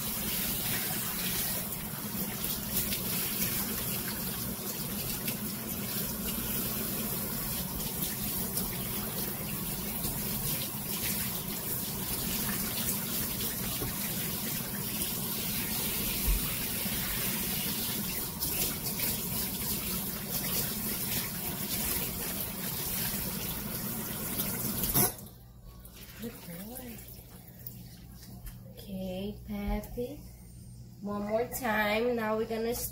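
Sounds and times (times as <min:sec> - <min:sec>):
faucet spray running: 0:00.0 - 0:25.1
water splashing into sink: 0:00.0 - 0:25.3.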